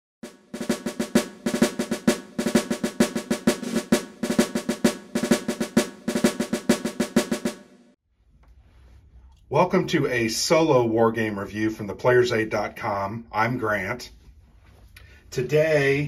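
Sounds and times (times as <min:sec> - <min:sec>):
rapid snare drum rolls: 0:00.2 - 0:08.0.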